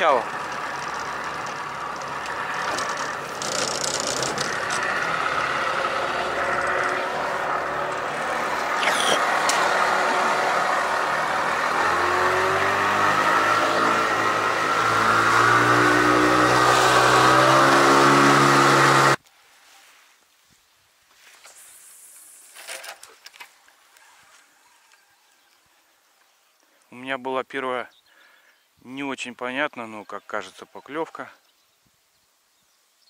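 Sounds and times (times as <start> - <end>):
outboard motor running: 0.0 - 19.2
water and wind hiss: 19.5 - 22.8.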